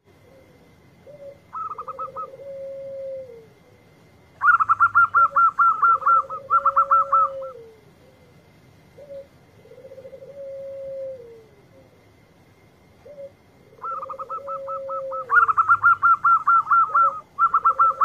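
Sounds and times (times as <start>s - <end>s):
dove rolling coo: 0.0s - 18.0s
high-pitched bird rapid calls: 4.4s - 7.6s, 13.8s - 18.0s.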